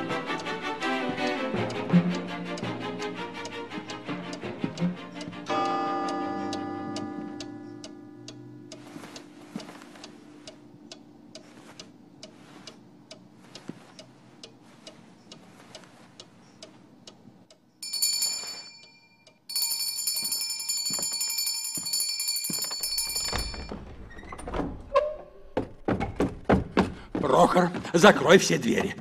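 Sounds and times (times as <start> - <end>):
clock ticking: 0.0 - 23.8, 26.2 - 29.0
loud continuous alarm bell: 17.8 - 23.8.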